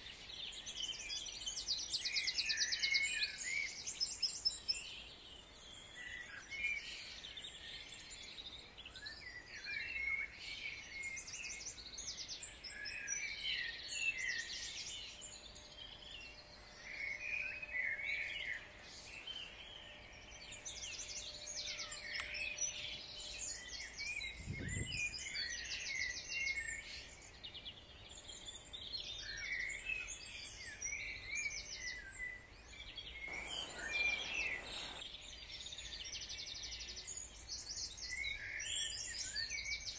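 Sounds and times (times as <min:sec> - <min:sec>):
songbirds chorus: 0:00.0 - 0:39.9.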